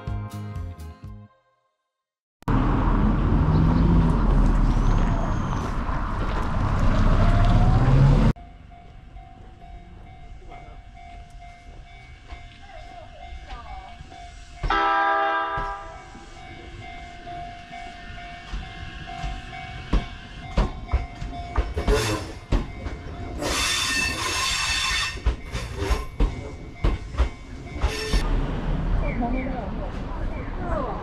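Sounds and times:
train horn blast: 14.7 - 16.2
clacks and knocks: 18.5 - 23.2, 25.2 - 28.2
train wheel squeal: 21.8 - 28.2.

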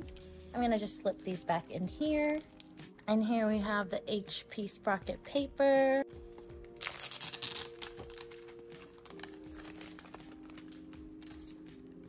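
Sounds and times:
soft background music: 0.0 - 12.0
plastic packaging crinkling: 1.1 - 3.0, 6.5 - 11.7.

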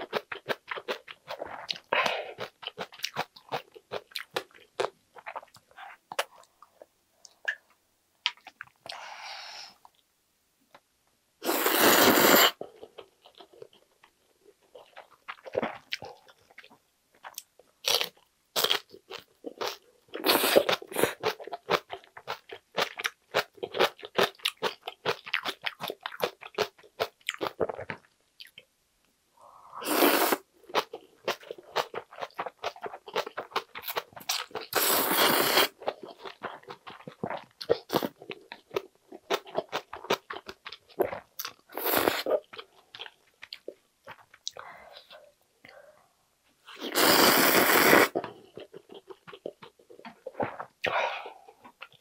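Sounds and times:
noodle slurping: 11.4 - 12.6, 29.8 - 30.5, 34.6 - 35.8, 46.8 - 48.2
crunchy chewing: 30.0 - 44.6.

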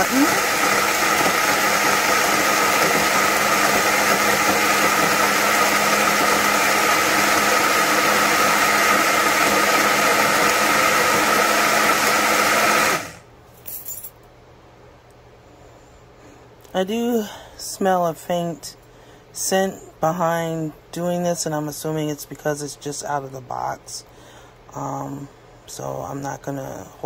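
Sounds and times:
blender running: 0.0 - 13.2.

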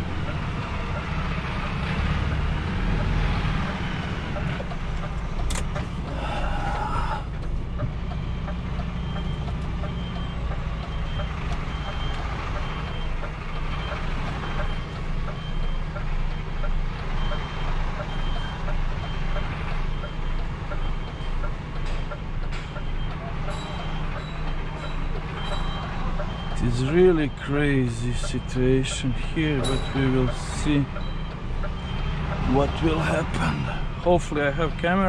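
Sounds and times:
diesel lorry engine running: 0.0 - 35.0
reversing alarm beeps: 7.7 - 33.8.

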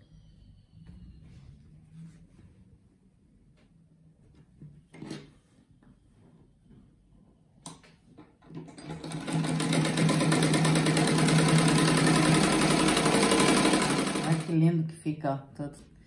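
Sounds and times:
sewing machine running: 8.6 - 14.5.

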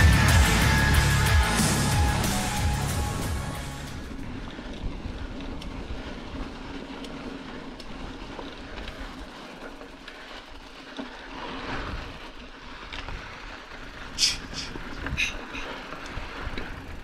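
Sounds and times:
bike tyre rumble on dirt: 0.0 - 17.0
wind buffeting microphone: 3.9 - 17.0
light rattles from bike: 4.0 - 17.0.

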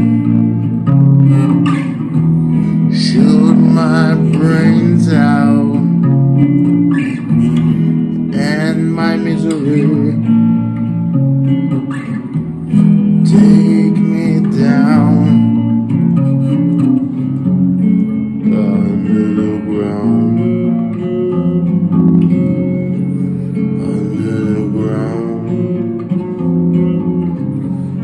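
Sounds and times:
electric guitar slow song: 0.0 - 28.0.

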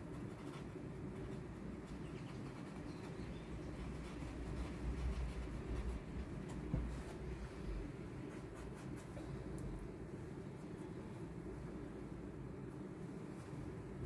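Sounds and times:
low room hum: 0.0 - 14.0.

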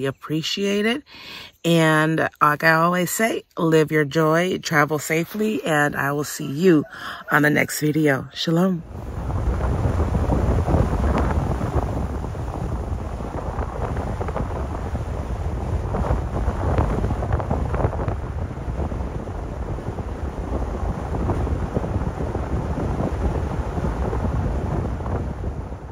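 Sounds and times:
wind buffeting microphone: 3.9 - 25.9
car driving on road: 8.9 - 25.9.

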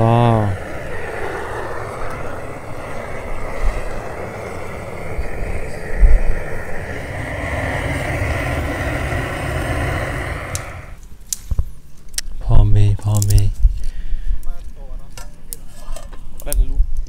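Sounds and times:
rising tone: 0.0 - 11.0
vehicle engine rumbling: 0.0 - 11.0.

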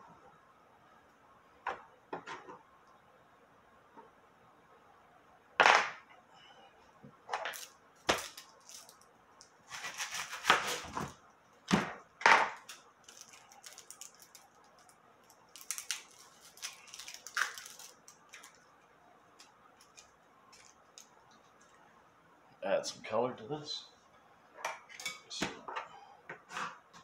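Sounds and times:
onion skin crackling as peeled: 12.7 - 18.6.

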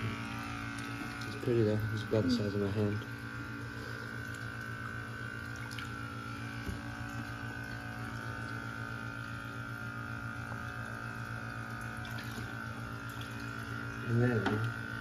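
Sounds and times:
water flowing: 0.0 - 3.3
water pump humming: 0.0 - 15.0.

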